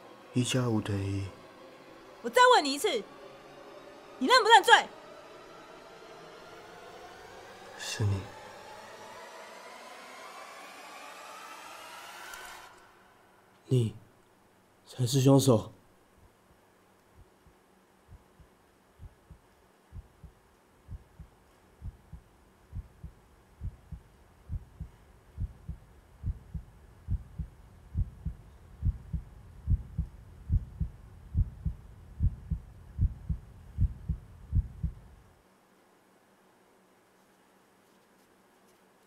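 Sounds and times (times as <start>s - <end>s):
heartbeat thumps: 17.2s - 35.2s.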